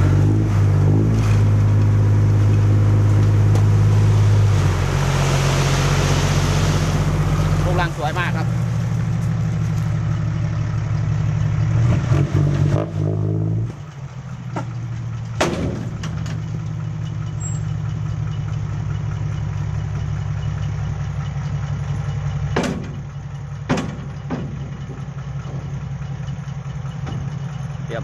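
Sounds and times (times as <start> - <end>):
truck diesel engine running: 0.0 - 28.0
sharp knocks: 15.4 - 16.4, 22.5 - 23.0, 23.7 - 24.7.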